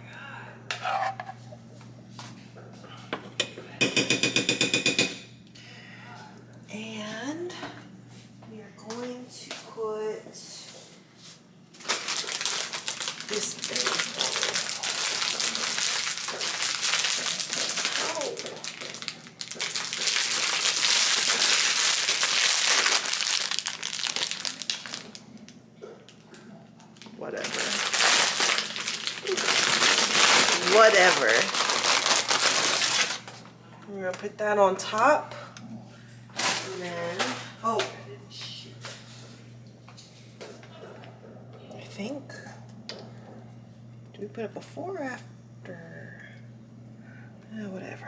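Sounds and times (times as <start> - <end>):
plastic bag crinkling: 11.8 - 26.2, 27.0 - 33.5, 36.4 - 37.5.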